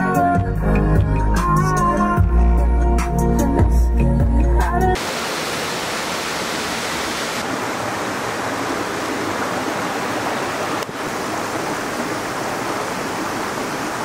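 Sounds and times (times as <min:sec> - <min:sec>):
waterfall and stream rushing: 0:05.0 - 0:14.0.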